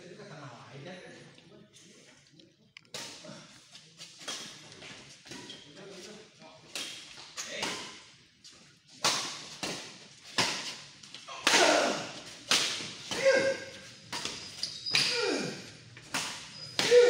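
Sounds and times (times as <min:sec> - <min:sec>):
rackets hitting shuttlecock: 0:08.9 - 0:15.3, 0:15.9 - 0:17.0.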